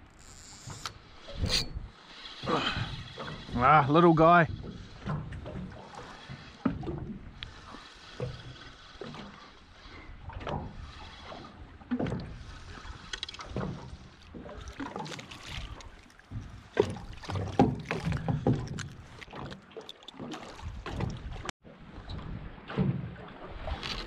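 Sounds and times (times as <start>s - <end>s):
fishing rod and reel knocking: 0.0s - 1.8s
water lapping at hull: 0.0s - 24.0s.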